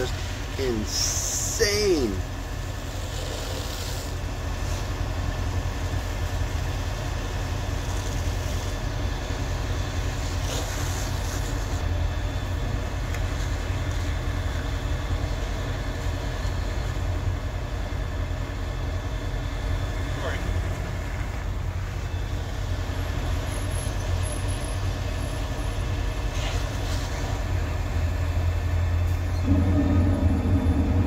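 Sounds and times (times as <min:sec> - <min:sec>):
steam hissing: 0:00.0 - 0:02.2, 0:02.8 - 0:05.0, 0:29.4 - 0:31.0
vehicle engine running: 0:26.8 - 0:31.0.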